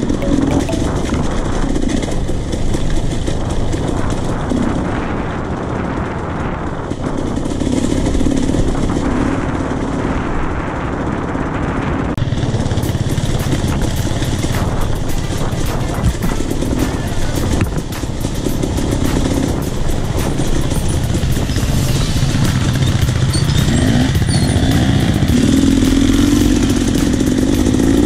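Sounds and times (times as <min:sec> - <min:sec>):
motorcycle engine running: 0:12.2 - 0:28.0.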